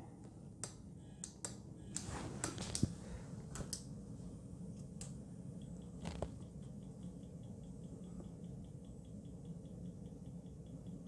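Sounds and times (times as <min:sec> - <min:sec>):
faint high ticking: 0:05.6 - 0:11.0.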